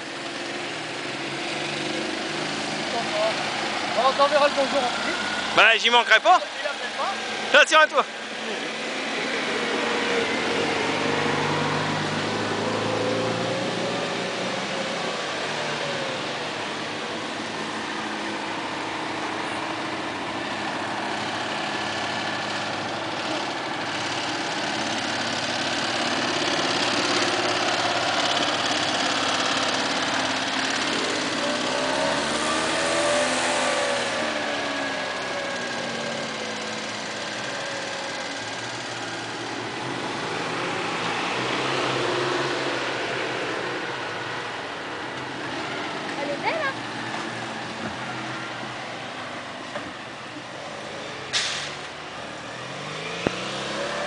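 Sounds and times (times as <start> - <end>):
off-road vehicle engines revving: 0.0 - 54.0.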